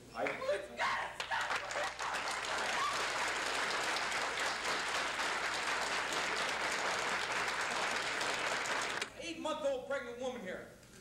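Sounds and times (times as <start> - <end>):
crowd applauding: 1.2 - 9.1.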